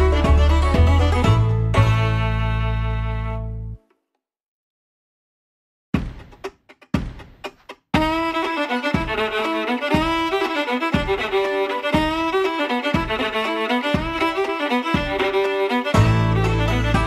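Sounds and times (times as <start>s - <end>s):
low beat: 0.0s - 2.1s, 6.0s - 17.0s
fiddle music: 0.0s - 3.8s, 8.0s - 17.0s.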